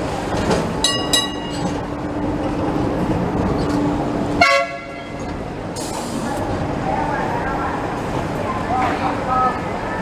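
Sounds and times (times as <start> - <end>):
steady tram hum: 0.0 - 10.0
street noise: 0.0 - 10.0
tram bell ringing: 0.8 - 2.0.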